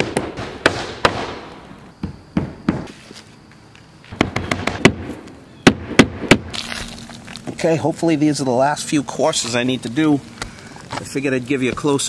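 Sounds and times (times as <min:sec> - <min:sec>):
hammer striking roofing nails: 0:00.0 - 0:01.4, 0:04.2 - 0:06.5.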